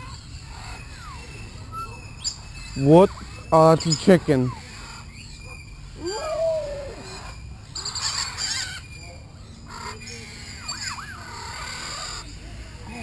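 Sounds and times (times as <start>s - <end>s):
gliding bird call: 0.0s - 8.9s
harsh bird squawks: 0.0s - 12.3s.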